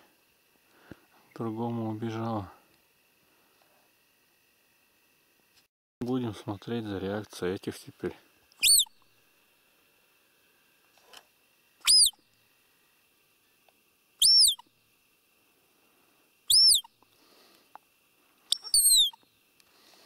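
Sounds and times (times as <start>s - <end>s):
deer call squeaker pips: 8.6s - 9.0s, 11.8s - 12.2s, 14.2s - 14.6s, 16.5s - 17.0s, 18.5s - 19.3s.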